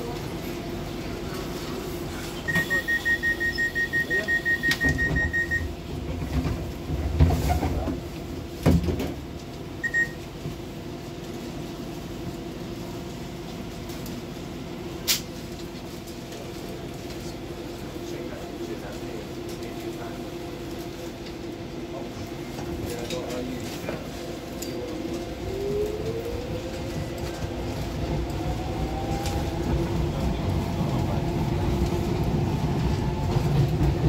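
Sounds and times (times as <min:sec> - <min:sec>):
train humming: 0:00.0 - 0:34.0
short beep: 0:02.4 - 0:05.7, 0:09.8 - 0:10.2
rapid high warning beeps: 0:02.5 - 0:05.7, 0:09.8 - 0:10.2.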